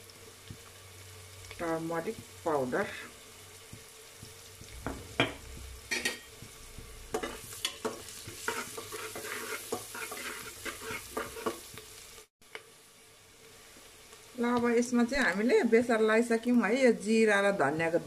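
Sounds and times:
onions sizzling in oil: 0.0s - 18.0s
spatula scraping pot: 7.1s - 11.7s.

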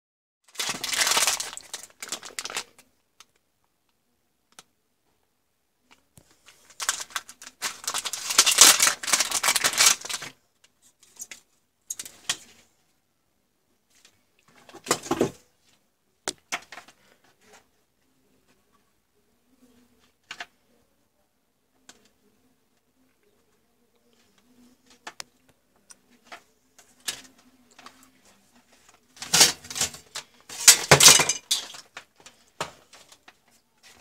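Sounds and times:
plastic bag crinkling: 0.5s - 2.8s, 6.2s - 10.4s, 28.8s - 34.0s
plastic clacks and rustles: 5.9s - 12.7s, 13.9s - 17.7s, 24.1s - 34.0s.

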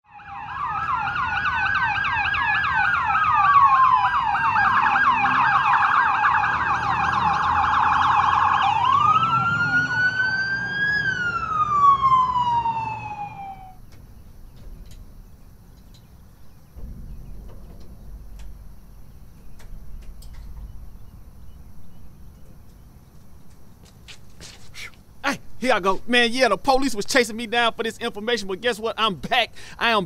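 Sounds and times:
police siren yelp: 0.0s - 13.8s
police siren wail: 0.0s - 13.9s
low rumble: 13.7s - 23.7s.

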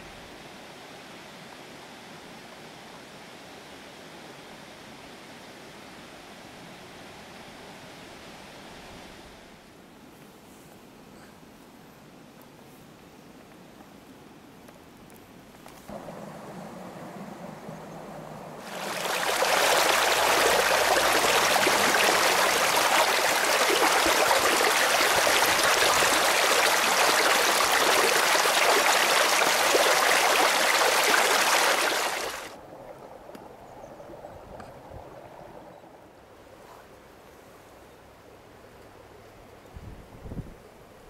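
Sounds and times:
faint outdoor ambience: 0.0s - 41.0s
stream water rushing over rocks: 18.6s - 32.6s.

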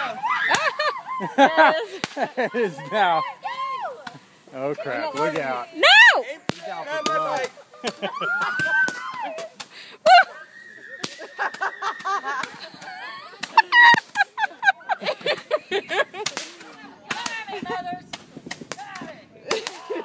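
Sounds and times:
people shouting: 0.0s - 4.2s, 5.0s - 14.1s
fireworks popping: 0.4s - 9.8s, 10.8s - 20.0s.

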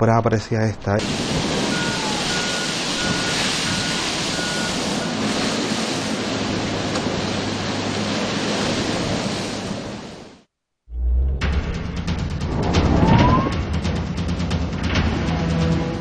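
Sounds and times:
wildfire roaring: 1.0s - 10.4s
short beeps: 1.7s - 4.8s.

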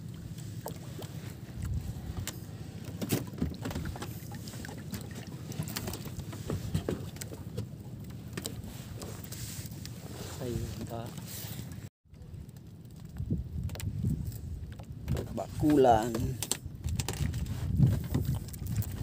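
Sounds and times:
wind rumble on microphone: 0.0s - 7.3s, 8.0s - 19.0s
waves lapping against boat hull: 0.0s - 19.0s
small clicks and knocks: 12.5s - 17.4s.

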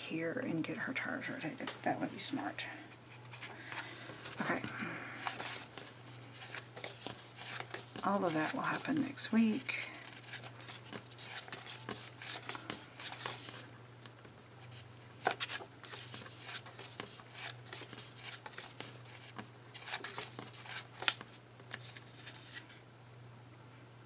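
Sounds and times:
low steady hum: 0.0s - 24.0s
paper rustling: 3.1s - 22.7s
sticker sheets peeling: 4.2s - 22.6s.

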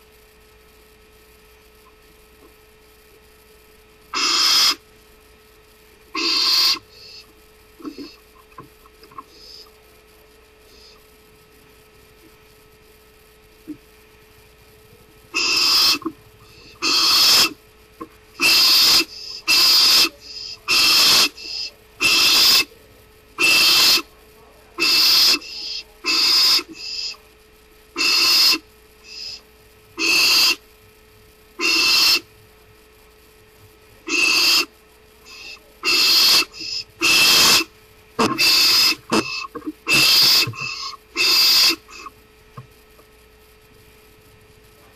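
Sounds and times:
faint electrical hum: 0.0s - 44.9s
barn owl screeching: 4.1s - 4.8s, 6.1s - 8.2s, 15.3s - 17.6s, 18.4s - 22.7s, 23.4s - 24.1s, 24.8s - 27.2s, 28.0s - 29.4s, 30.0s - 30.6s, 31.6s - 32.3s, 34.1s - 42.1s.

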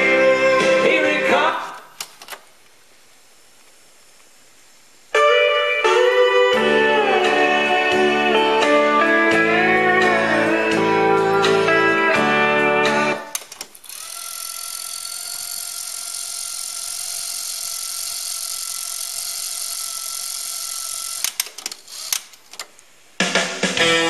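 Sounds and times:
country music with guitar: 0.0s - 1.6s, 5.2s - 13.3s, 23.7s - 24.0s
tape deck whirring hiss: 0.0s - 24.0s
sharp clicks: 13.3s - 14.2s, 21.2s - 22.8s.

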